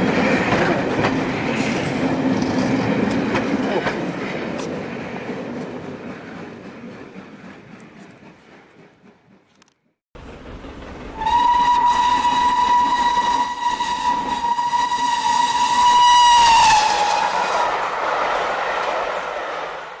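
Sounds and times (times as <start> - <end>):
steam train whistle: 11.1 - 17.7.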